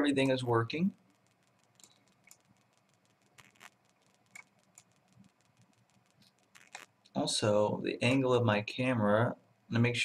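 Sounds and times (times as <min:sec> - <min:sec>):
computer mouse clicks: 0:01.0 - 0:07.2.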